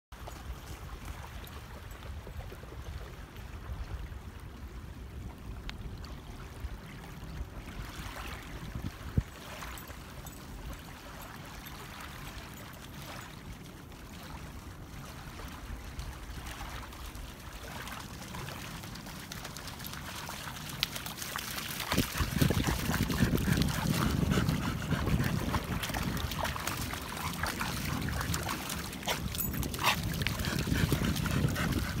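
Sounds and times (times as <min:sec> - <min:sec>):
small waves lapping: 0:00.2 - 0:32.0
dog splashing through water: 0:16.4 - 0:32.0.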